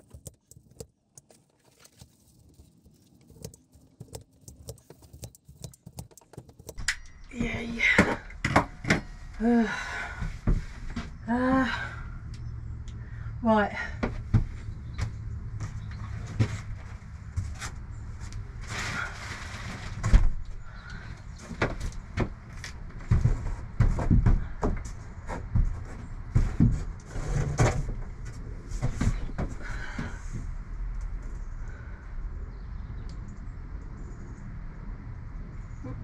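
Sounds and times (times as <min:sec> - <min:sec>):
foil insulation crinkling: 0:00.0 - 0:06.8
knocks and clatters of handwork: 0:00.0 - 0:07.0.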